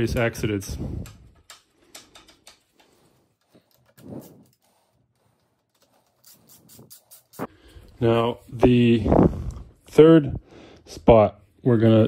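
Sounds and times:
metallic clicks of tools: 0:01.0 - 0:04.0.

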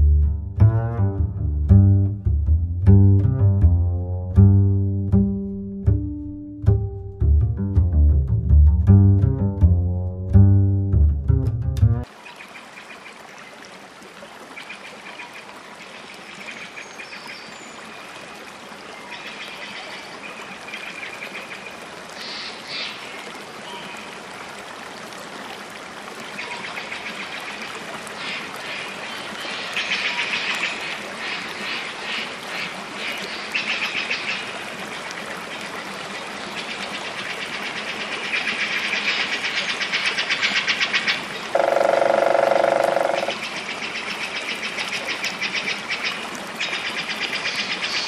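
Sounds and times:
water trickling: 0:11.1 - 0:39.4, 0:40.5 - 0:48.0.

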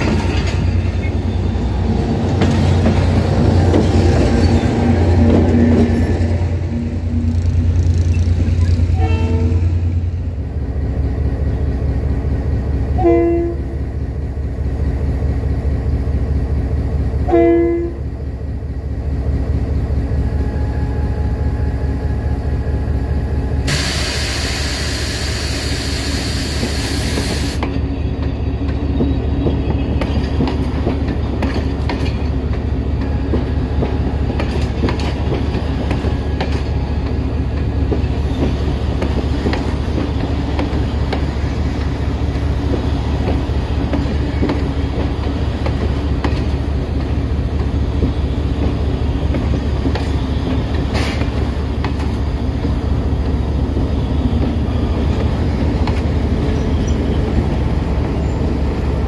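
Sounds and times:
train horn blasts: 0:08.9 - 0:09.9, 0:13.0 - 0:13.8, 0:17.2 - 0:18.1
loud hiss: 0:23.7 - 0:27.6.

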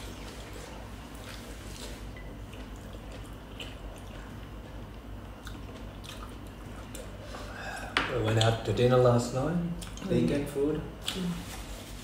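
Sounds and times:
low steady hum: 0:00.0 - 0:12.0
chewing mouth sounds: 0:01.1 - 0:07.2.

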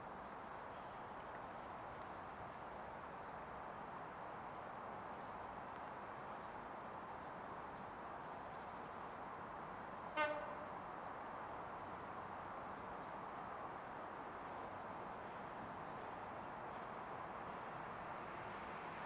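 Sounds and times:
low background hiss: 0:00.0 - 0:19.0
short horn toot: 0:10.2 - 0:10.7.

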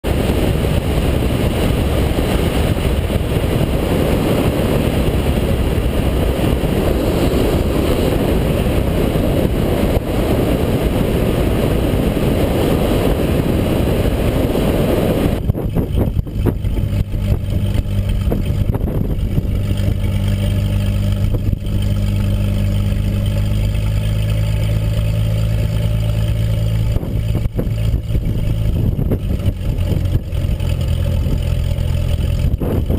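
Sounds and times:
airplane engine humming: 0:00.0 - 0:32.9
wind rush on microphone: 0:00.0 - 0:32.9.

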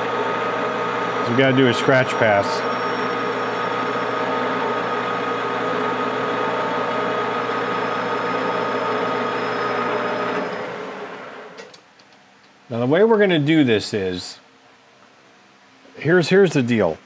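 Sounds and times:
metal lathe humming: 0:00.0 - 0:11.6.

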